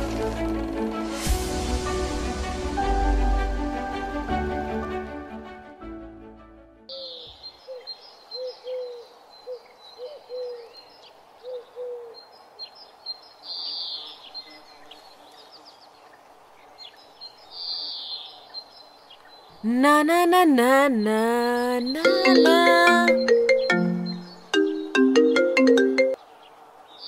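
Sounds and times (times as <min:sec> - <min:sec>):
higher bird chirps and twitters: 0:20.4 - 0:26.2
birds calling low curved notes: 0:21.0 - 0:26.1.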